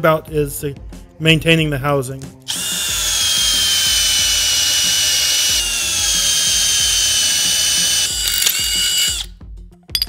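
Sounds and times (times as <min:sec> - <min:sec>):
cordless drill boring metal: 0:02.5 - 0:09.3.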